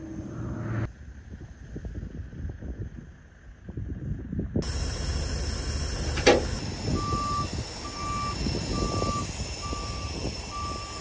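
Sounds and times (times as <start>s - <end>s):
truck backup alarm beeping: 4.6s - 11.0s.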